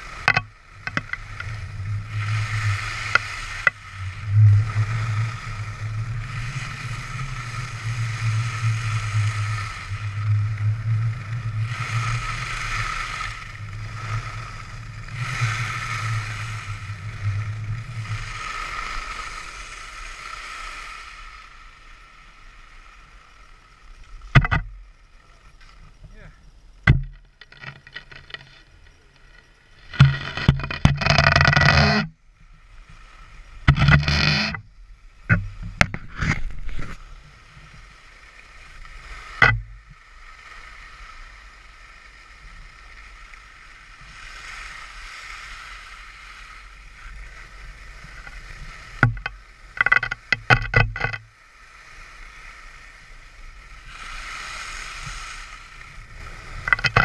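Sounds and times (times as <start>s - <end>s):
wind on microphone: 0.0s - 21.6s, 29.8s - 40.0s, 51.8s - 57.0s
skis hissing on snow: 0.0s - 23.9s, 40.1s - 49.8s, 51.4s - 56.6s
ski edges scraping snow: 1.0s - 21.8s, 27.8s - 32.1s, 35.6s - 39.4s, 51.6s - 57.0s.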